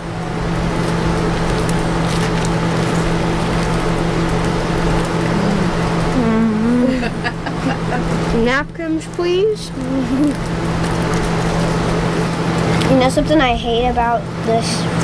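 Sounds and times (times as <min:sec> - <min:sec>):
low hum: 0:00.0 - 0:12.8
campfire crackling and popping: 0:08.9 - 0:13.1.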